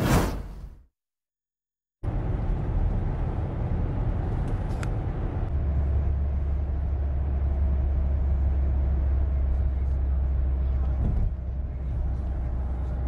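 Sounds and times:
tyre and engine rumble: 2.0 - 13.0.

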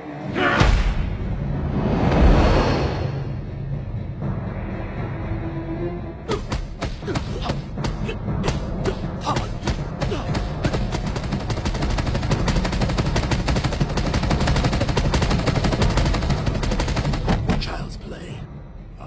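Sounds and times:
music: 0.0 - 19.0
fight hits and blows: 6.3 - 17.6.

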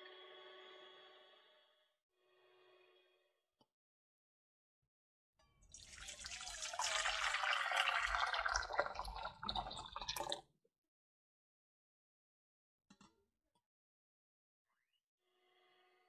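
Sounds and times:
water pouring into metal pot: 5.7 - 10.4.

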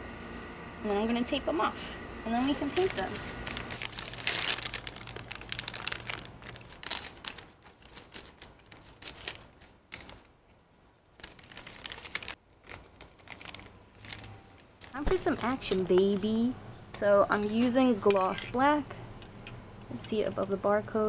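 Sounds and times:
plastic bag crinkling: 2.5 - 10.3, 11.1 - 16.5.

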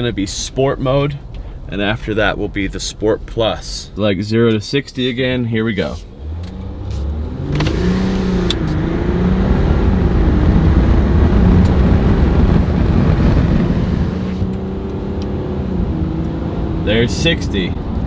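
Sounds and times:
road and tyre noise: 0.0 - 18.0
diesel engine accelerating hard: 6.1 - 18.0.

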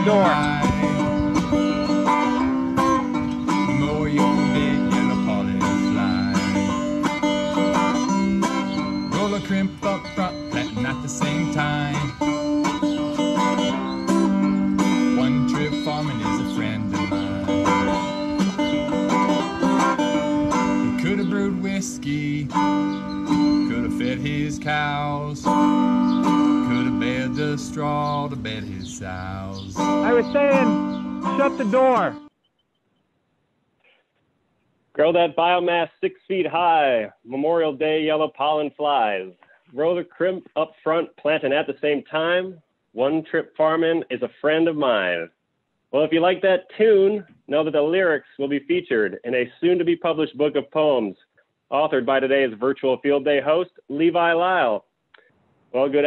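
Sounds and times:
plucked banjo: 0.0 - 21.3
steady bass: 0.0 - 32.1
acoustic guitar: 0.0 - 32.3.

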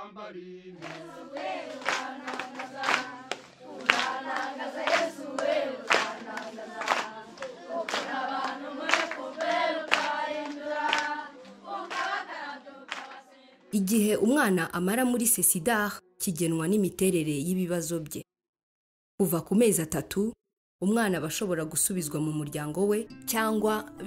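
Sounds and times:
children singing: 0.7 - 13.6
hands clapping: 0.8 - 13.2.

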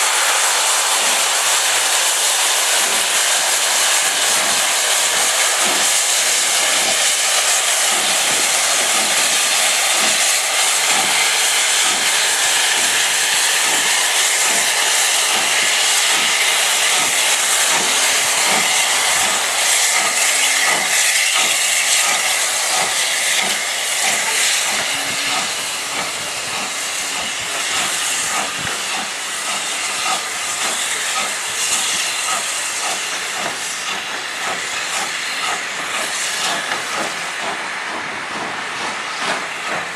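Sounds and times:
steam hissing from locomotive: 0.0 - 39.9.

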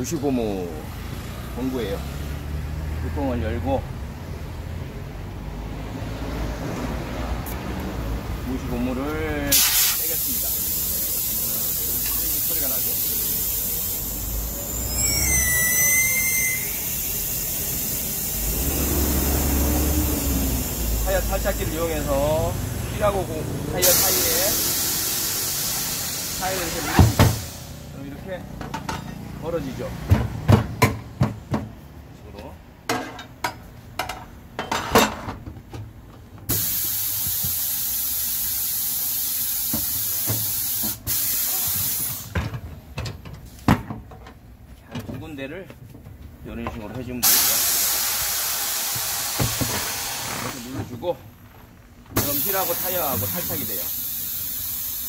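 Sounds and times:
air whistling from tyre valve: 9.5 - 22.3, 23.8 - 27.8, 36.5 - 42.4, 47.2 - 50.7, 52.2 - 55.0.

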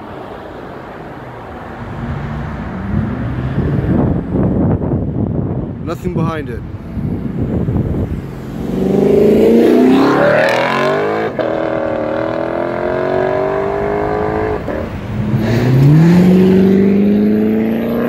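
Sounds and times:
car engine accelerating: 7.3 - 18.0.

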